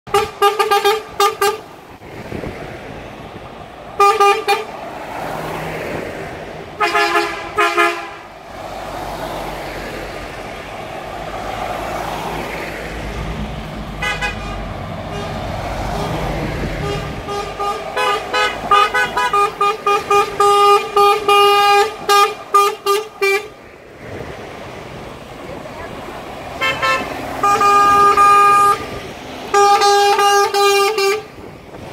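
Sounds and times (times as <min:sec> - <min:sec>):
diesel engine and tyre rumble: 0:00.0 - 0:31.9
truck horns tooting: 0:00.1 - 0:02.6, 0:03.9 - 0:05.4, 0:06.6 - 0:08.5, 0:10.4 - 0:23.6, 0:25.8 - 0:31.6.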